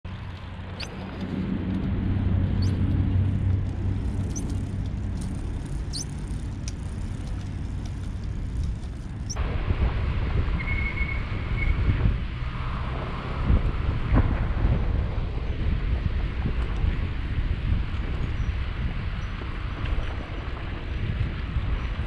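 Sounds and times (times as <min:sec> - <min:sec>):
traffic hum: 0:00.0 - 0:22.0
wind rumble on microphone: 0:00.0 - 0:22.0
bird chirps: 0:02.6 - 0:02.8, 0:05.9 - 0:06.2.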